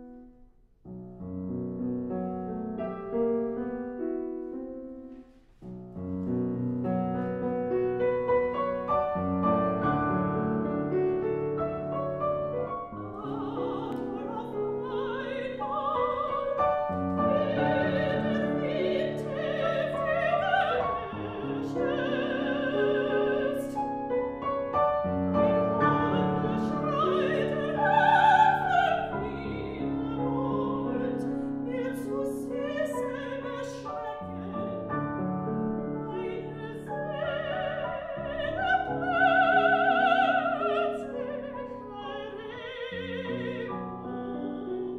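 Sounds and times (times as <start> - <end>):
grand piano: 0.0 - 44.9
soprano singing with vibrato: 13.0 - 24.4, 25.1 - 44.9.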